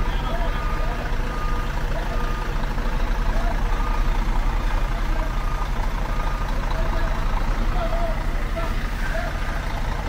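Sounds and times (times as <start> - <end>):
heavy diesel machinery rumbling: 0.0 - 10.0.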